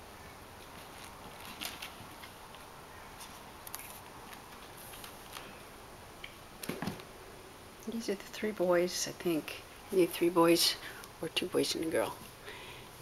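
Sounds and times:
kittens' claws scratching: 0.6s - 5.4s.

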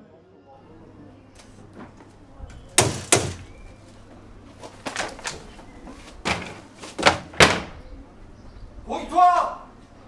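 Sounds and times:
plastic wheelie bin knocks: 2.8s - 3.5s, 6.3s - 7.8s.

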